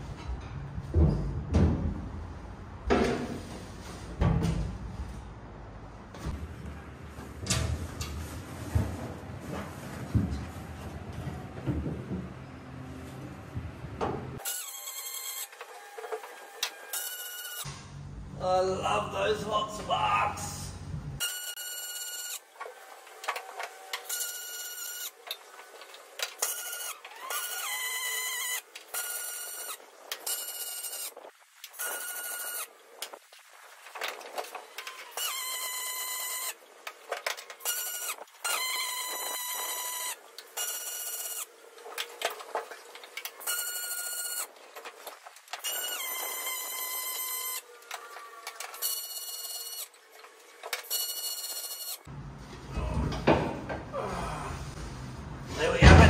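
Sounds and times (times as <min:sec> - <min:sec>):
welding arc buzzing: 0:14.4 - 0:15.7, 0:37.6 - 0:41.5.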